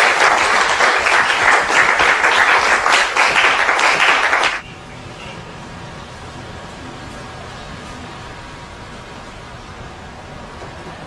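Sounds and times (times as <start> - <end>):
audience applause: 0.0 - 4.6.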